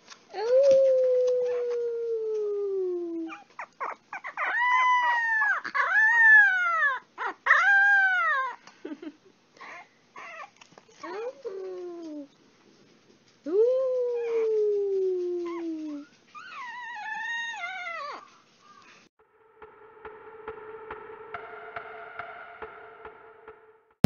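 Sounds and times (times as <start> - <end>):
puppy howling: 0.5 - 8.6, 13.6 - 18.9
puppy yipping: 3.2 - 8.6, 9.7 - 12.4, 15.4 - 19.0.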